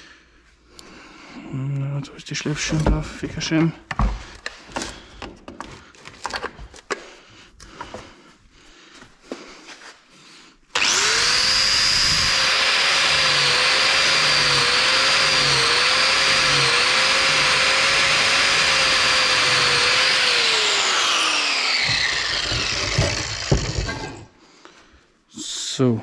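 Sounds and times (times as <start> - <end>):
angle grinder grinding metal: 10.8 - 24.3.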